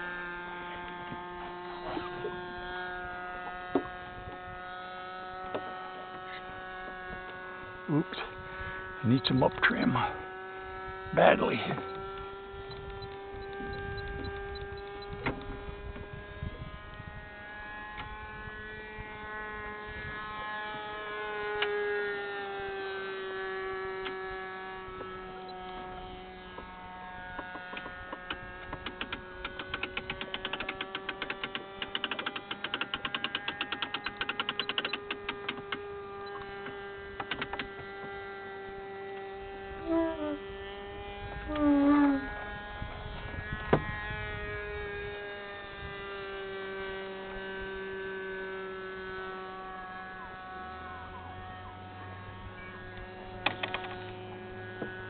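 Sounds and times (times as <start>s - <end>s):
model airplane engine droning: 0.0s - 55.0s
rapid ticking: 27.7s - 36.4s.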